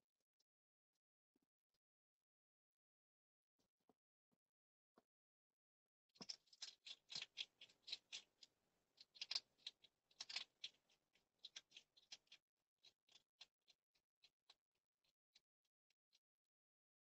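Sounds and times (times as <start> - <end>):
hedgehog crunching dry food: 6.2 - 10.8.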